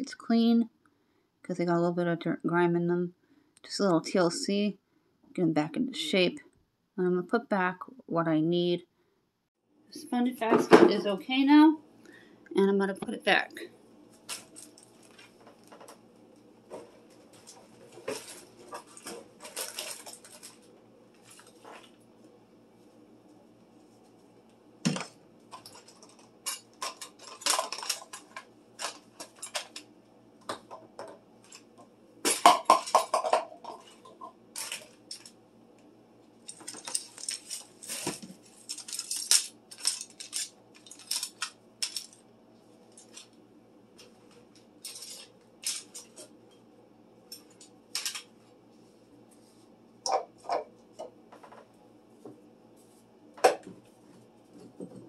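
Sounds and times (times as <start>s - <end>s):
plastic items clattering in cabinet: 16.7s - 22.0s, 24.8s - 35.4s, 36.5s - 42.2s, 44.8s - 46.4s.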